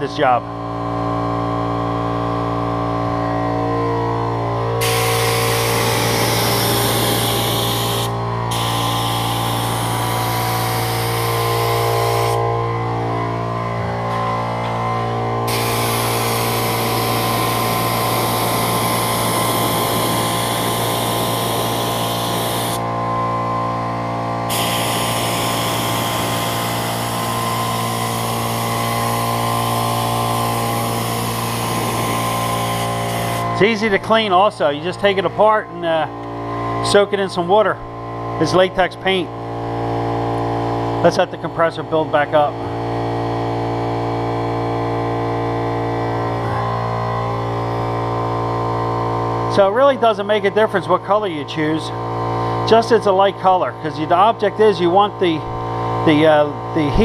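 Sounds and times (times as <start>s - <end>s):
air compressor running: 0.0s - 57.0s
paint spray gun hissing: 4.8s - 12.4s, 15.4s - 22.8s, 24.5s - 33.5s.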